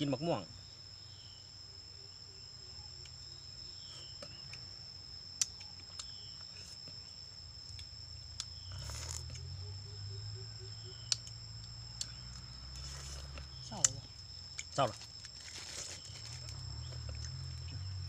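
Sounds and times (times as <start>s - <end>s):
high-pitched insect drone: 0.0s - 18.0s.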